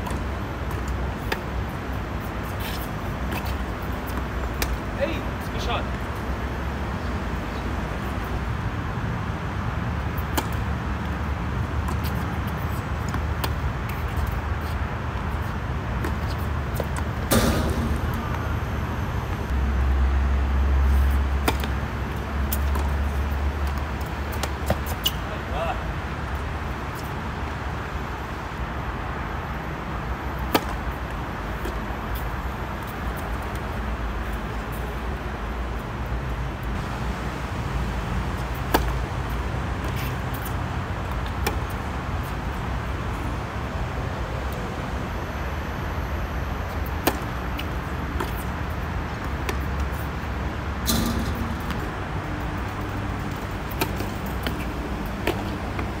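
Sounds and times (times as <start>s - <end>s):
low outdoor rumble: 0.0s - 25.0s.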